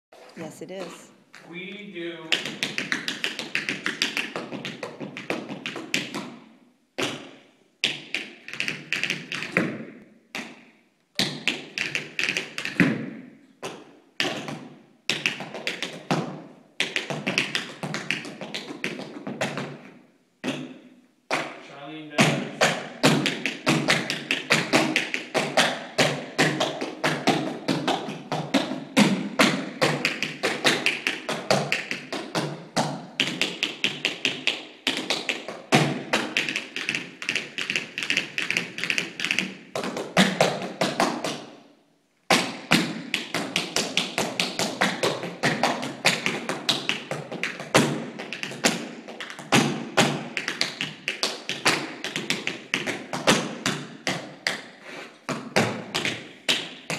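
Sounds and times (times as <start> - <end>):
tap shoes on wooden floor: 0.8 - 6.4, 55.3 - 56.9.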